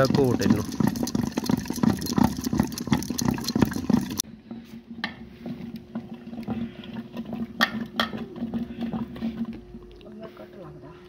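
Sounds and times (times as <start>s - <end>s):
wooden masher squelching greens: 0.0s - 4.2s
low steady hum: 0.0s - 11.0s.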